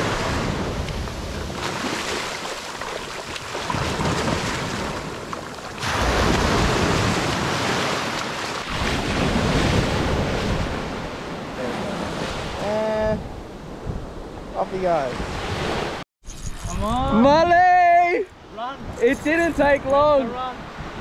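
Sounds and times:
surf breaking on beach: 0:00.0 - 0:12.7.

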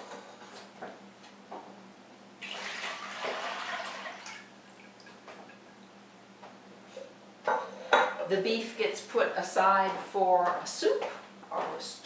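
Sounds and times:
liquid pouring and splashing: 0:02.4 - 0:05.2.

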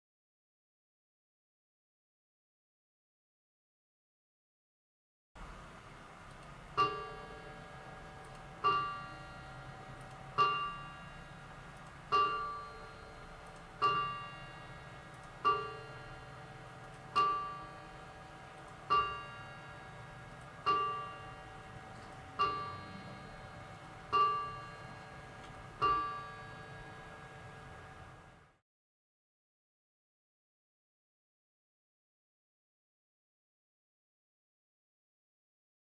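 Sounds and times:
mantel clock striking: 0:06.7 - 0:28.4.

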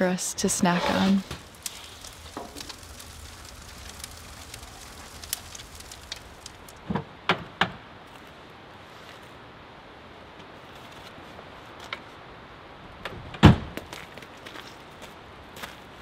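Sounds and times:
wood fire crackling: 0:00.0 - 0:06.9
fire popping: 0:00.3 - 0:07.0.

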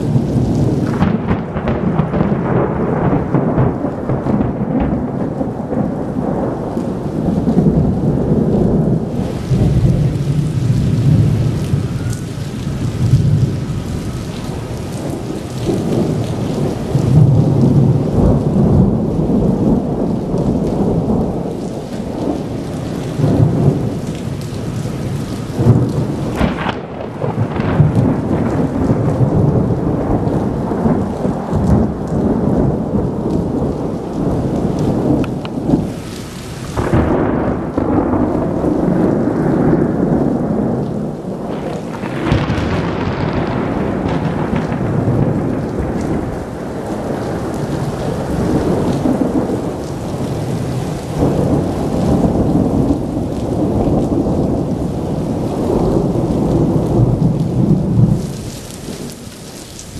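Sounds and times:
steady rain: 0:00.0 - 0:59.9
thunder rumbling: 0:00.0 - 0:59.9
sharp thunder crack: 0:00.1 - 0:14.0, 0:25.6 - 0:33.6, 0:36.7 - 0:54.8.

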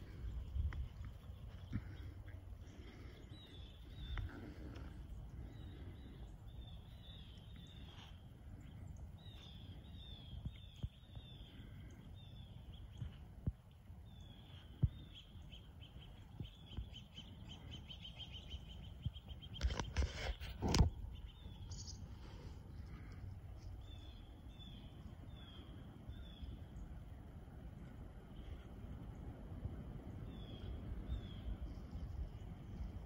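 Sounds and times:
wind noise rumble: 0:00.0 - 0:03.2, 0:18.8 - 0:33.0.

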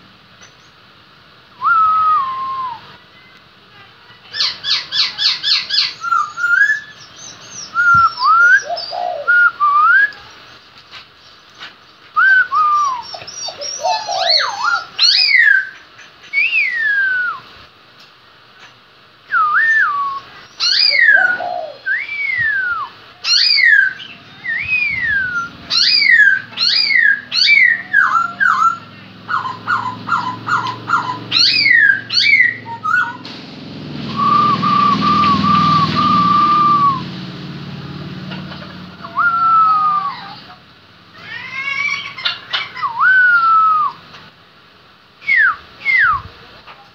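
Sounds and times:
bird singing whistled phrases: 0:01.6 - 0:02.9, 0:04.4 - 0:10.2, 0:12.2 - 0:17.5, 0:19.3 - 0:33.2, 0:34.1 - 0:37.1, 0:39.0 - 0:40.5, 0:42.6 - 0:44.0, 0:45.2 - 0:46.3
bird trilling: 0:04.3 - 0:09.4, 0:12.6 - 0:17.0, 0:20.5 - 0:22.6, 0:23.2 - 0:33.2, 0:34.1 - 0:37.1, 0:41.2 - 0:43.8.

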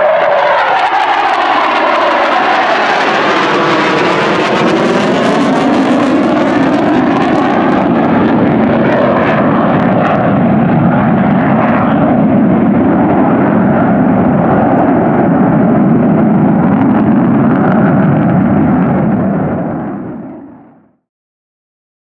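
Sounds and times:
jet engine roar: 0:00.0 - 0:21.0.

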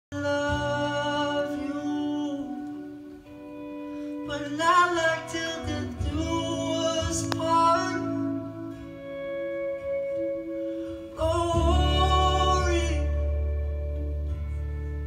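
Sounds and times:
man singing: 0:00.1 - 0:03.2, 0:04.2 - 0:08.8, 0:11.1 - 0:13.9
acoustic and electric guitar: 0:00.1 - 0:15.0.

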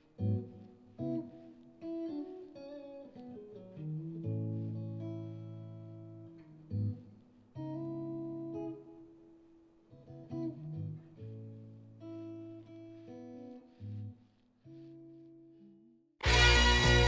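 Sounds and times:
guitar chords ringing: 0:00.0 - 0:09.3, 0:09.9 - 0:14.1, 0:16.2 - 0:17.0
low bass notes: 0:16.2 - 0:17.0.

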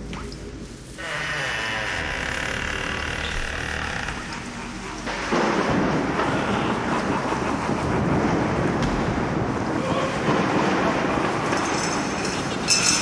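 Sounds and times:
wind: 0:00.0 - 0:13.0
thunder rumbling: 0:05.0 - 0:11.8.

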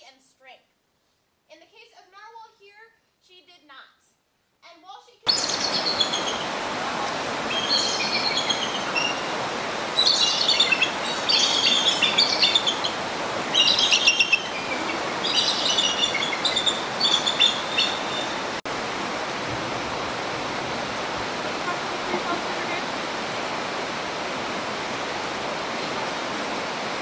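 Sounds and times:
rapid chittering bird calls: 0:05.3 - 0:06.6, 0:07.4 - 0:18.6
rushing water: 0:05.3 - 0:27.0.

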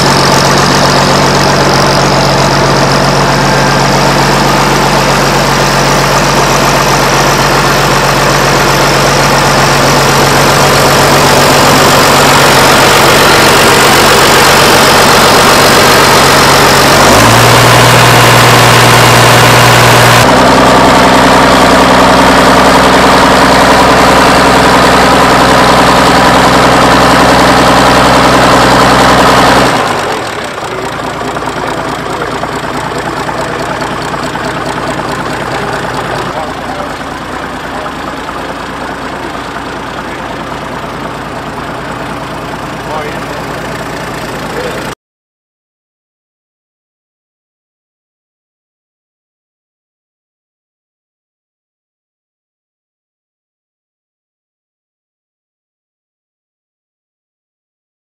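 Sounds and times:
tractor engine idling: 0:00.0 - 0:45.0.

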